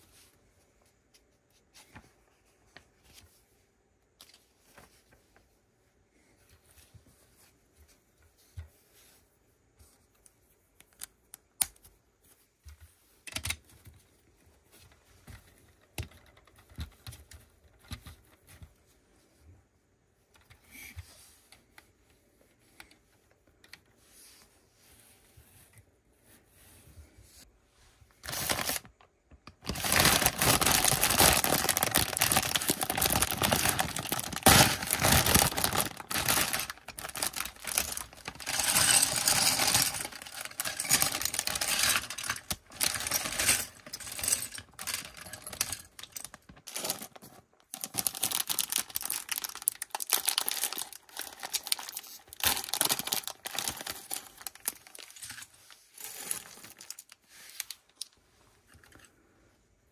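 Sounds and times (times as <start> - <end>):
plastic bag crinkling: 28.2 - 55.4, 56.0 - 58.0
plastic bricks rattling and clicking: 28.3 - 55.4.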